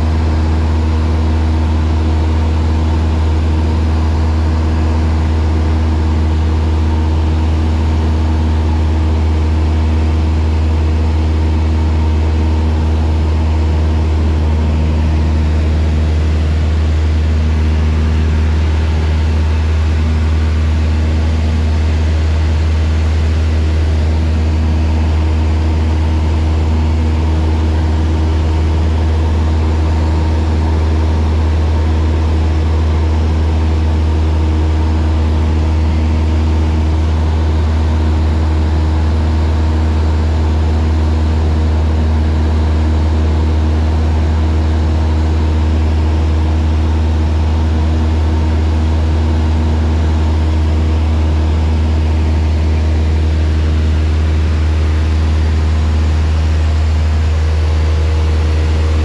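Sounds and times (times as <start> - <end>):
light aircraft engine drone: 0.0 - 59.0.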